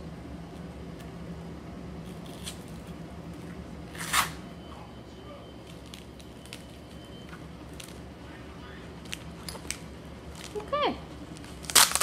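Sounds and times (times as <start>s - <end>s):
packaging crinkling: 11.3s - 12.0s
packaging rustle: 11.4s - 12.0s.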